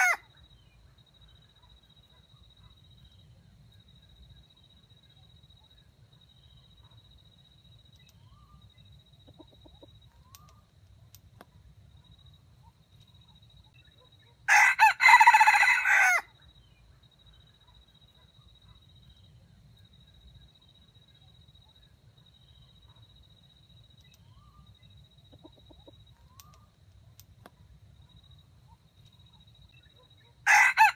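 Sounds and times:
rooster crowing: 0.0s - 0.3s, 14.5s - 16.3s, 30.4s - 30.9s.

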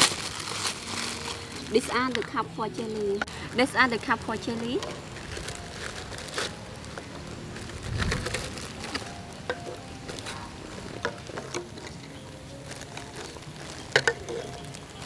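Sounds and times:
plastic bag rustling: 0.0s - 15.0s
plastic cups clicking on table: 8.1s - 10.4s, 12.8s - 14.7s.

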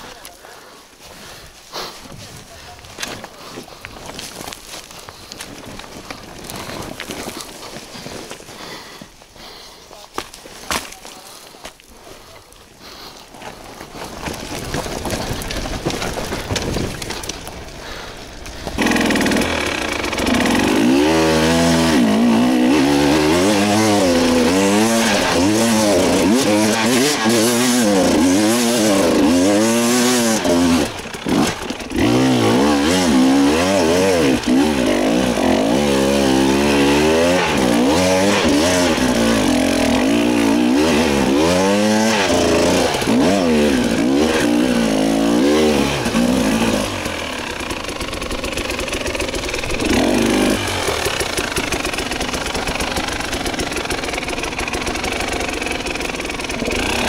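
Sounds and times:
dirt bike engine revving: 17.8s - 57.0s.

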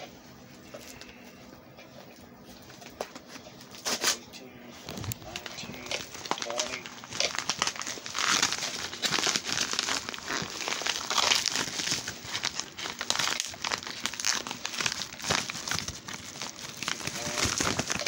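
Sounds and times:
padded envelope crinkling: 4.8s - 18.0s.

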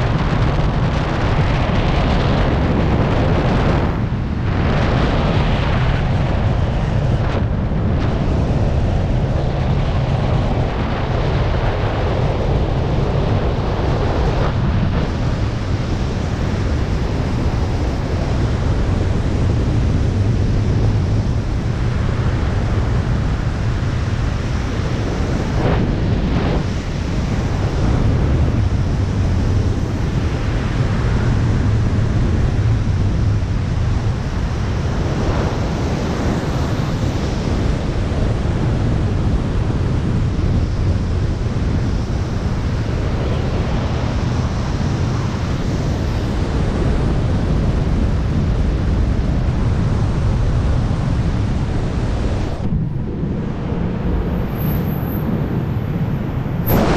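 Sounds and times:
wind rushing over microphone: 0.0s - 56.9s.

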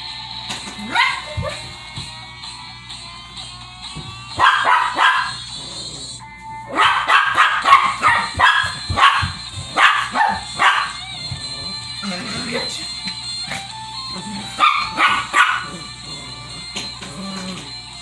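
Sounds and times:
small dog barking: 0.9s - 1.6s, 4.4s - 5.4s, 6.7s - 11.0s, 14.6s - 15.8s.

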